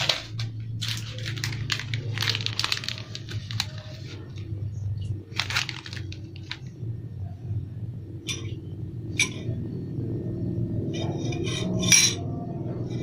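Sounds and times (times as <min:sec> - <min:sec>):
plastic wrapper crinkling: 0:00.0 - 0:06.8
steady low hum: 0:00.0 - 0:13.0.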